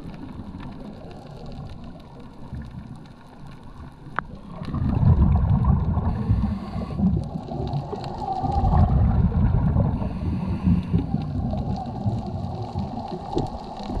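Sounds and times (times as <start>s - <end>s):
underwater regulator bubbling: 4.2s - 14.0s.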